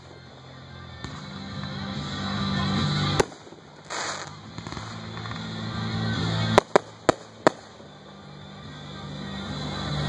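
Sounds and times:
firework hissing crackle: 0.0 - 10.0
firework bangs: 2.7 - 8.1.

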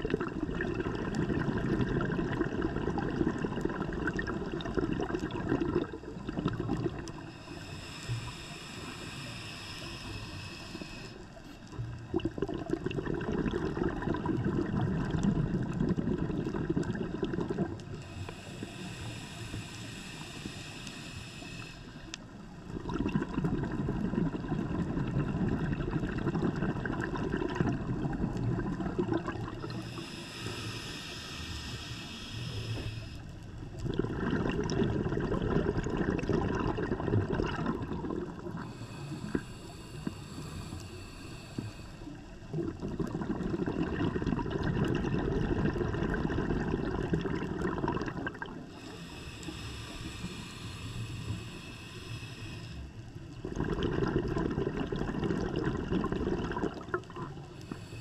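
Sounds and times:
exhaled bubbles gushing: 0.0 - 7.3, 11.6 - 18.2, 22.6 - 30.5, 33.6 - 39.4, 42.3 - 48.8, 53.3 - 57.8
diver inhaling through regulator: 0.9 - 58.0.

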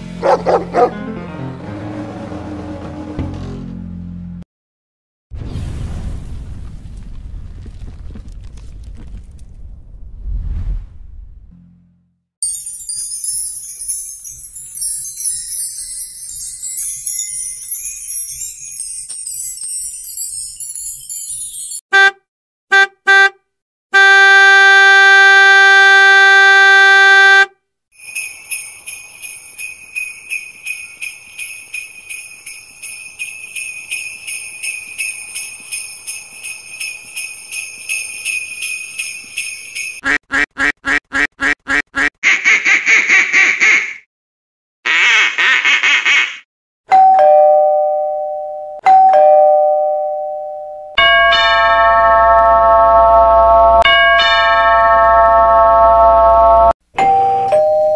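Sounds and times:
ding-dong doorbell chime: 12.4 - 21.8, 46.9 - 56.1, 57.0 - 57.9
sleigh bells jingling: 12.4 - 21.8, 28.0 - 40.0.

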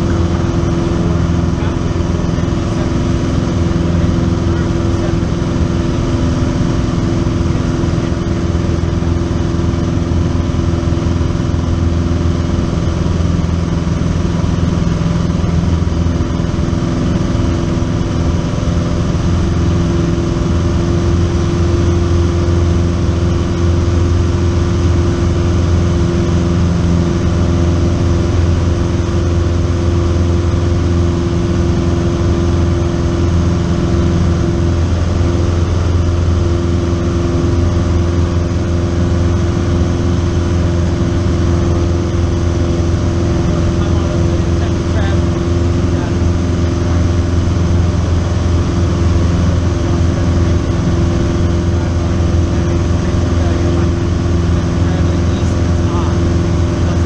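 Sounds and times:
propeller plane engine drone: 0.0 - 57.0.

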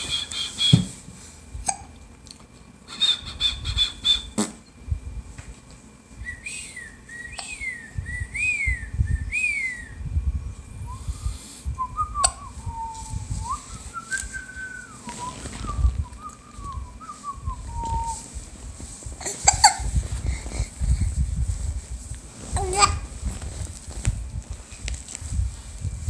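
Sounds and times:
man whistling a tune: 0.0 - 0.8, 2.9 - 4.4, 6.2 - 10.1, 10.8 - 18.2.

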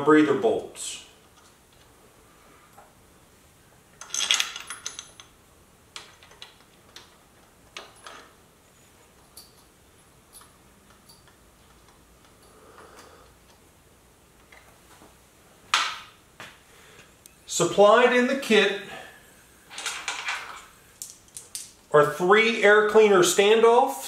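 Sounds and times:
metal bolts clinking: 4.0 - 5.4, 6.0 - 8.4.

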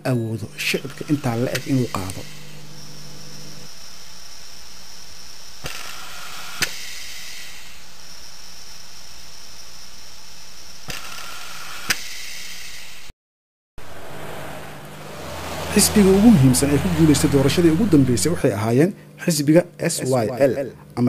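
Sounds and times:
low hum: 0.0 - 5.7, 13.8 - 18.6
thin high whine: 0.0 - 10.8, 13.8 - 18.8
film soundtrack hiss: 0.0 - 13.0.

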